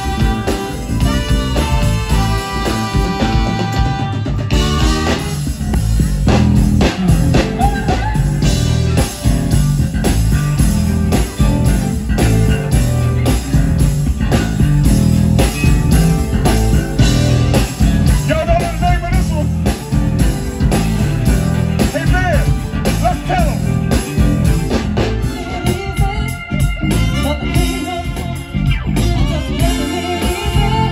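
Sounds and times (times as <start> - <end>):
live band playing: 0.0 - 30.9
steady drum beat: 0.0 - 30.9
person singing: 25.2 - 30.9.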